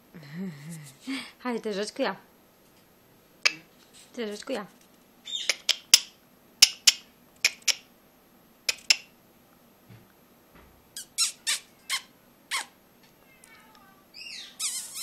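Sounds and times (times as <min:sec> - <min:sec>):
person making sharp clicks: 0:03.4 - 0:03.7, 0:05.4 - 0:07.9, 0:08.7 - 0:09.1
short falling squeak: 0:14.2 - 0:15.0.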